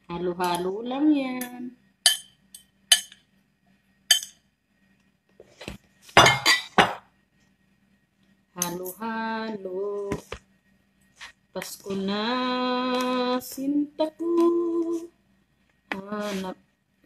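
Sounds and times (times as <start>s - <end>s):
metal spoon clinking against bowls: 1.4s - 3.2s, 4.1s - 4.4s
woman singing long notes: 11.8s - 15.2s.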